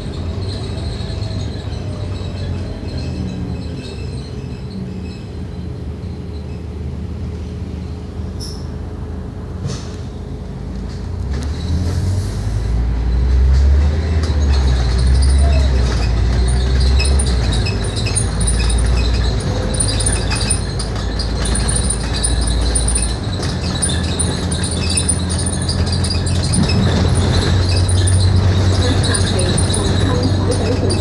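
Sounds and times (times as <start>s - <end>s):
bus engine drone: 0.0s - 31.0s
high jingling rattle of fittings: 14.7s - 31.0s.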